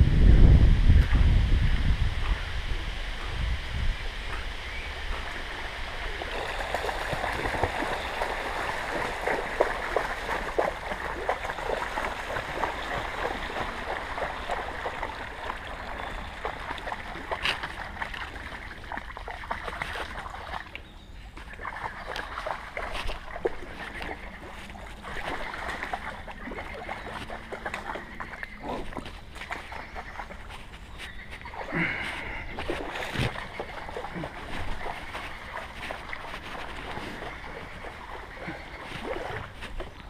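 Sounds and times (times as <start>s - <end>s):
bike splashing through water: 4.6s - 20.7s
dog running and splashing: 5.1s - 40.0s.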